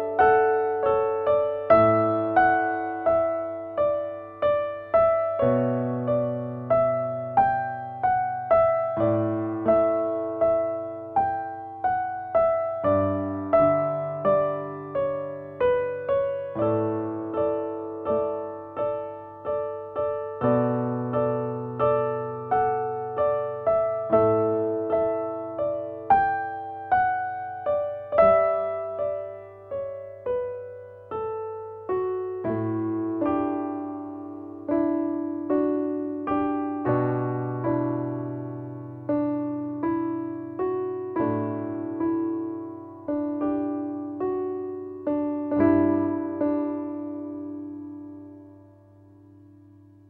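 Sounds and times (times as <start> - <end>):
slow piano music: 0.0 - 50.0.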